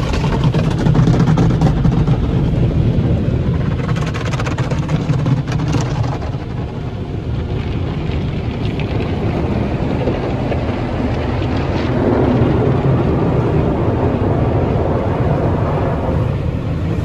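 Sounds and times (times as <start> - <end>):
car wash machinery rumble: 0.0 - 17.0.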